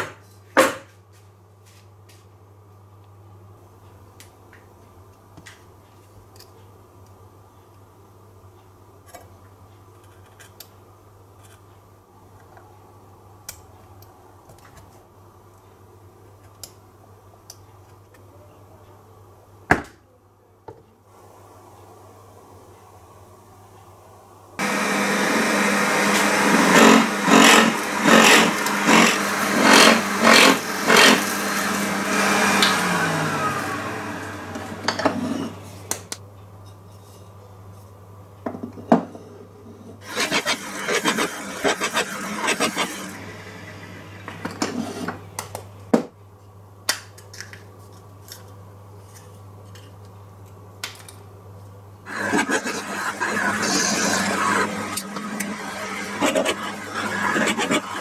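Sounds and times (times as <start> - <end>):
drill press boring into wood: 24.6 - 32.7, 52.1 - 58.0
drill spinning down: 24.6 - 35.8, 40.0 - 44.6, 52.1 - 58.0
dust collector hum: 24.6 - 36.0, 40.0 - 45.4, 52.1 - 58.0.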